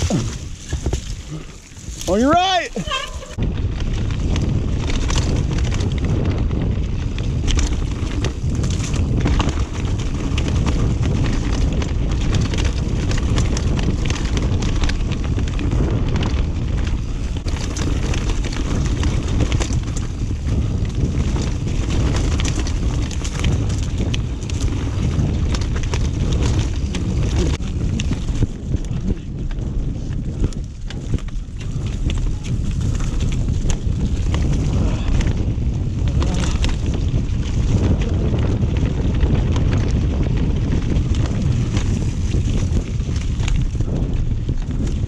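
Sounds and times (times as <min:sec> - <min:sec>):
bike frame rattling and knocking: 0:00.0 - 0:45.0
wind on camera microphone: 0:00.0 - 0:45.0.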